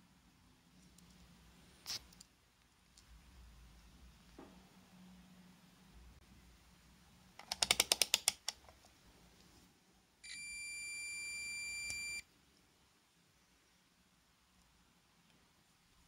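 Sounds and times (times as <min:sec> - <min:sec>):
continuity buzzer beep: 0:10.3 - 0:12.2.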